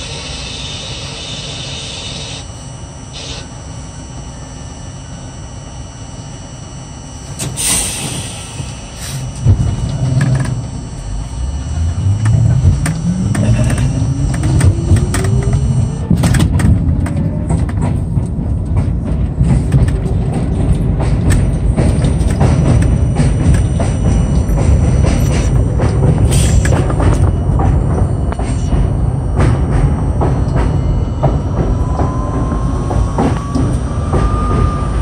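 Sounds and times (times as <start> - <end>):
traction motors whining: 0.0 - 35.0
train running gear rumbling: 7.2 - 35.0
air hiss: 7.4 - 9.3, 26.3 - 26.8.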